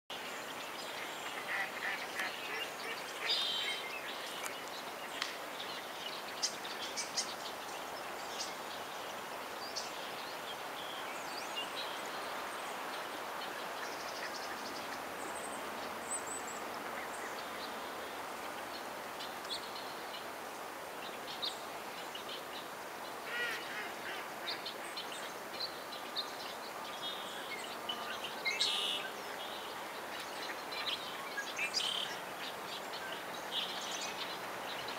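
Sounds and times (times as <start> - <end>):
steady background hiss: 0.1 - 34.9
ducks quacking: 1.2 - 3.8, 23.3 - 25.0.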